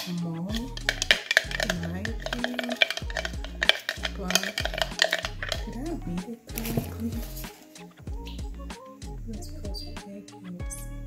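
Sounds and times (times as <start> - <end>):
spoon clinking against bowl: 0.0 - 5.8
background music with bass: 0.0 - 11.0.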